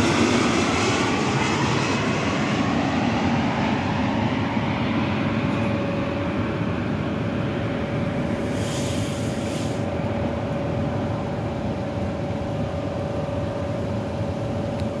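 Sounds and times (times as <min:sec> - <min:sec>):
jet engine rumble: 0:00.0 - 0:15.0
jet engine whine: 0:00.0 - 0:15.0
short hiss: 0:08.4 - 0:09.9.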